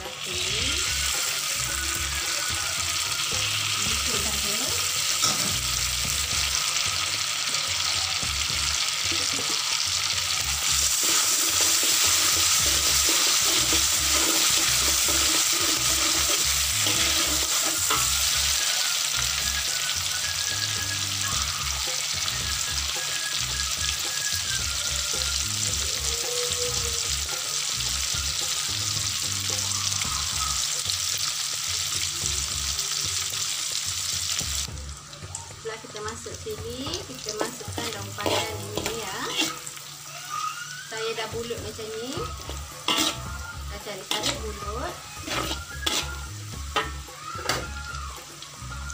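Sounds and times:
food sizzling in hot oil: 0.0 - 48.9
metal spatula scraping wok: 4.0 - 6.0, 10.6 - 19.2, 37.2 - 39.9, 41.2 - 47.6.

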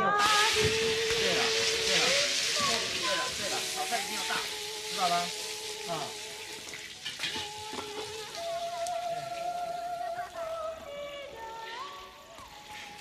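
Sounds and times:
food sizzling in a pot: 0.0 - 13.0.

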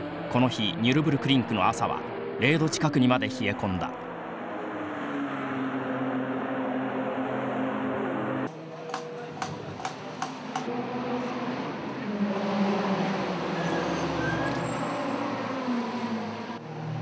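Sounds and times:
cars moving through pit lane: 0.0 - 17.0
race car engines running: 4.0 - 17.0.

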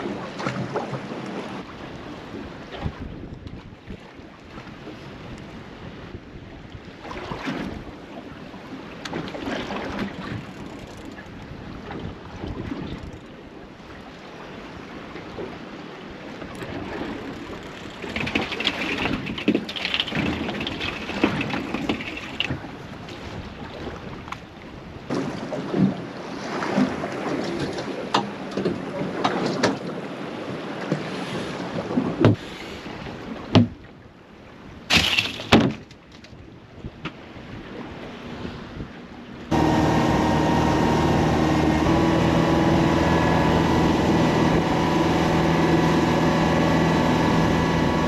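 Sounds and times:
water noise: 0.0 - 48.0
wind buffeting microphone: 1.5 - 8.1.

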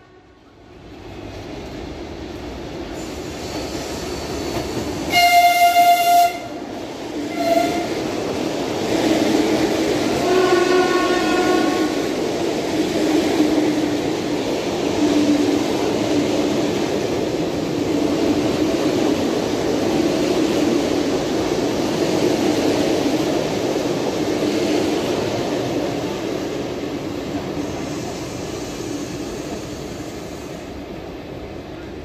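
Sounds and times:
train horn: 0.0 - 0.4, 5.1 - 6.6, 7.3 - 8.0, 10.2 - 12.0
train rumbling on rails: 0.0 - 32.0.

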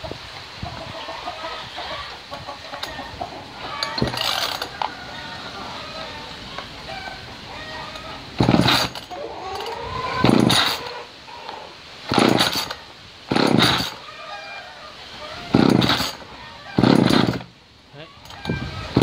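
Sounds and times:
engine turning over: 3.7 - 4.8, 7.9 - 11.0, 12.0 - 14.0, 15.5 - 17.6
chainsaw pull-start yanks: 3.8 - 4.8, 8.0 - 10.9, 12.1 - 14.0, 15.5 - 17.5.

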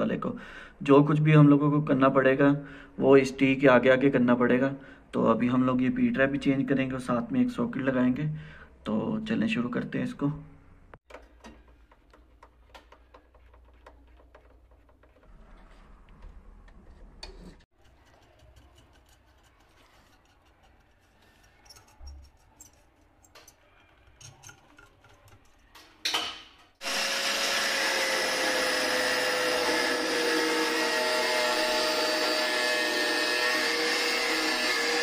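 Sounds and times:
handling clicks and taps: 11.0 - 15.3
power tool whining: 26.8 - 35.0.

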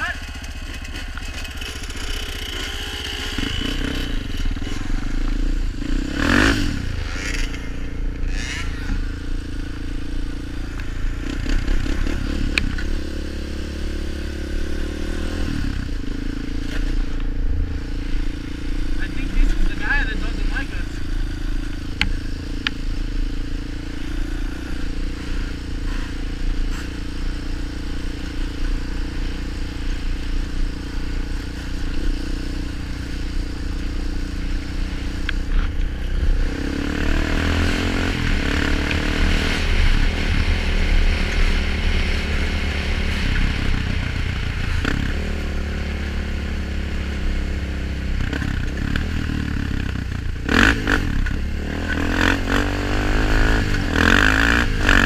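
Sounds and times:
rattling over rough ground: 0.0 - 5.7
quad bike engine running: 0.0 - 55.0
wind: 0.0 - 55.0.

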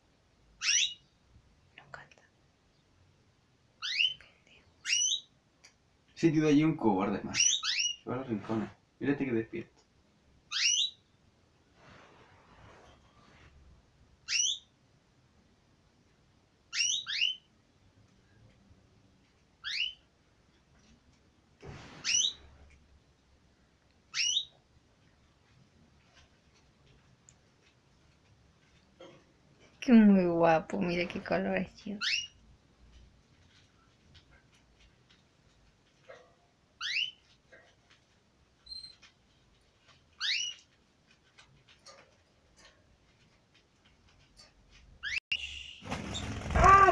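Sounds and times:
canary high chirp: 0.6 - 1.2, 3.8 - 4.2, 4.8 - 5.4, 7.3 - 8.1, 10.5 - 11.1, 14.2 - 14.8, 16.7 - 17.5, 19.6 - 20.1, 22.0 - 22.5, 24.1 - 24.6, 32.0 - 32.4, 36.8 - 37.3, 38.6 - 39.1, 40.2 - 40.7, 45.0 - 46.9
soft rustle: 11.6 - 14.0, 20.5 - 22.9, 32.7 - 36.4, 37.1 - 45.1
canary rising sweeping call: 21.9 - 22.4.

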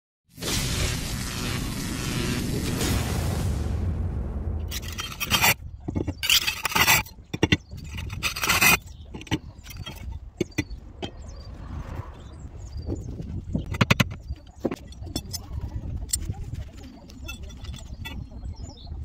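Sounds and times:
roof tiles scraping: 4.7 - 11.4, 12.8 - 18.5
tiles clicking and knocking: 4.8 - 11.3, 13.6 - 18.3.

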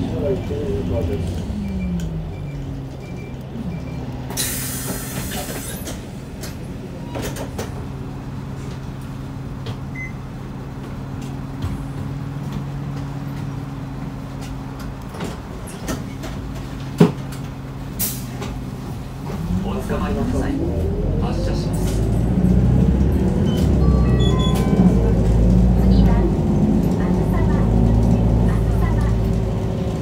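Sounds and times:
diesel bus engine idling: 0.0 - 30.0
compressed air hiss: 4.4 - 5.8.

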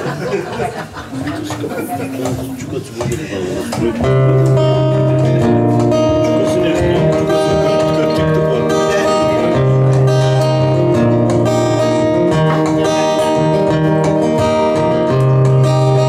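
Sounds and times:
acoustic guitar strumming: 3.4 - 16.0
bass notes: 3.8 - 16.0
melody instrument long notes: 4.0 - 16.0.

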